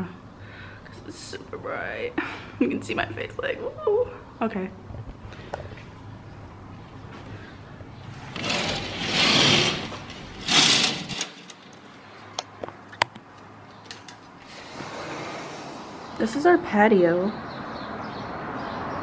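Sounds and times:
curtains scraping along rail: 8.1s - 11.8s, 14.4s - 16.0s.

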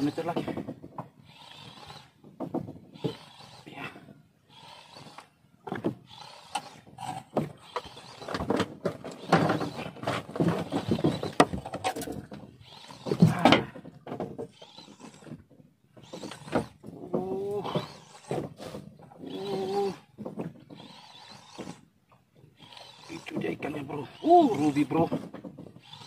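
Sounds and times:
fishing reel cranking: 4.5s - 5.3s, 6.1s - 8.4s, 14.6s - 15.3s, 16.0s - 16.7s, 19.2s - 20.0s, 20.8s - 21.8s, 22.6s - 25.1s, 25.8s - 26.0s.

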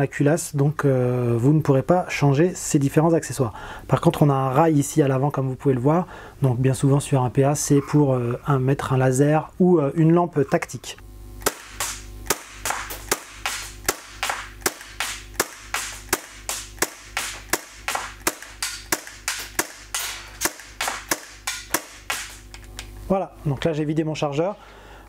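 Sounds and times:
airsoft pistol firing: 11.4s - 22.5s.

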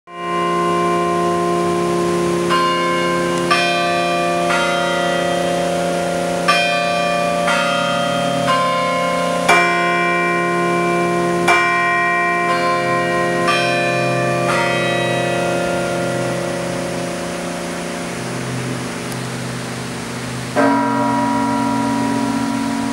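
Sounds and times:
carillon bells playing slow tune: 0.1s - 22.9s.

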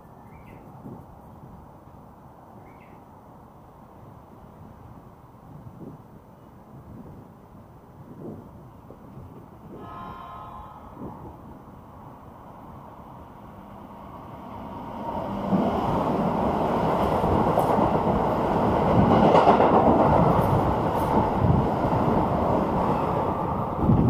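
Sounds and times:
electric train passing: 7.5s - 24.0s.

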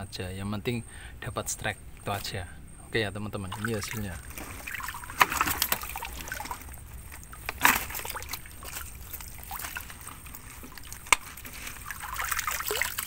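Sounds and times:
water trickling and sloshing: 3.4s - 13.0s
sharp knocks from handling net: 4.3s - 11.9s.

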